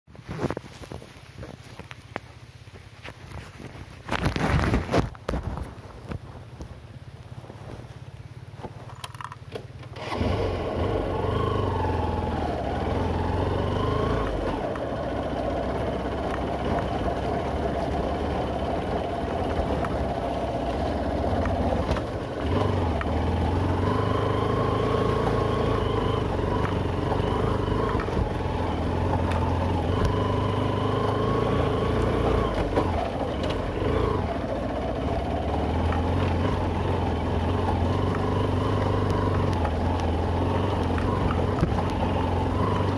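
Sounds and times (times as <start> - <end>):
motorcycle engine revving: 9.9 - 42.9.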